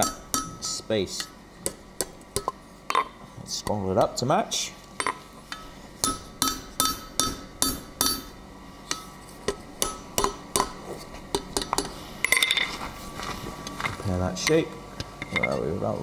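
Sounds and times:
hammer striking hot steel on anvil: 0:00.0 - 0:03.1, 0:05.0 - 0:12.5.

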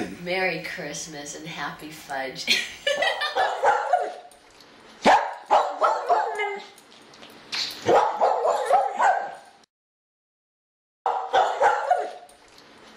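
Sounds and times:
dog barking: 0:03.3 - 0:04.3, 0:05.0 - 0:06.6, 0:07.8 - 0:09.5, 0:11.1 - 0:12.3.

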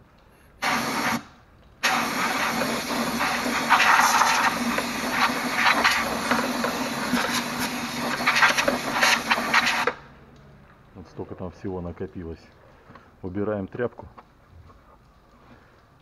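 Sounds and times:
compressed air blow gun hissing: 0:00.6 - 0:09.9.

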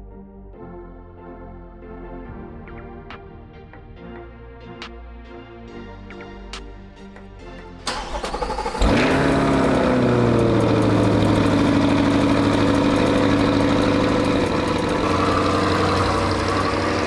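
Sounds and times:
car engine revving and idling: 0:07.9 - 0:17.0
starter cranking: 0:07.9 - 0:17.0.

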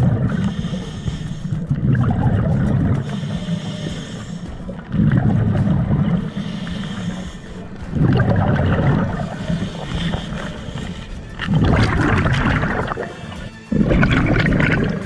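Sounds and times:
regulator inhale hiss: 0:00.0 - 0:05.0, 0:05.6 - 0:08.0, 0:09.0 - 0:11.6
exhaled bubbles rumbling underwater: 0:00.0 - 0:15.0.

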